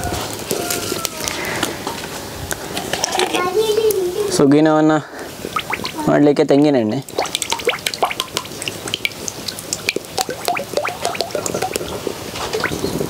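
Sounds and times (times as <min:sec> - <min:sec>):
small drips and splashes: 0:05.3 - 0:06.1, 0:07.0 - 0:12.8
oil pouring into iron pan: 0:07.1 - 0:11.9.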